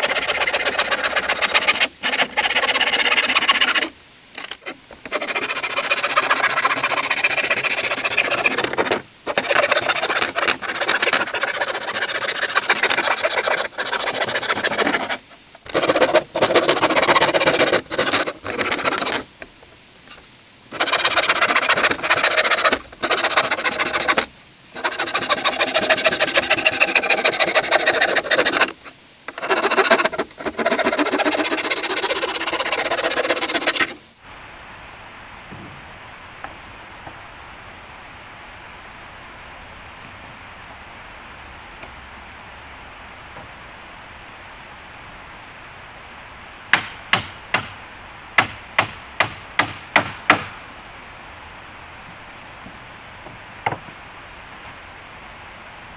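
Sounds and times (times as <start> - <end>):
hand saw cutting wood: 0.0 - 19.3, 20.7 - 34.0.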